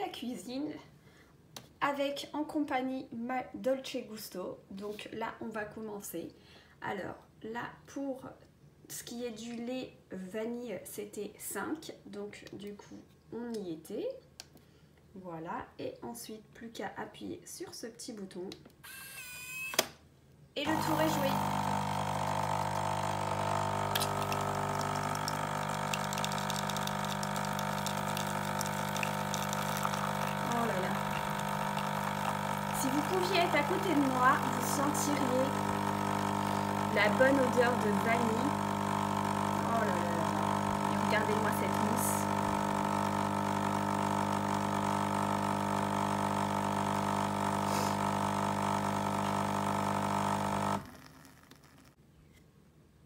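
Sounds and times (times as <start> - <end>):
capsule machine pump humming: 20.6 - 51.0
milk pouring into a mug: 20.7 - 51.8.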